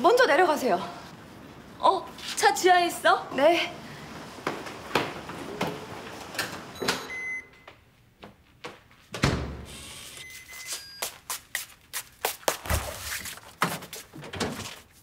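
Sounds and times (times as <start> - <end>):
footsteps: 3.9 - 6.4, 10.3 - 15.0
keypad door lock beeping: 6.8 - 7.7.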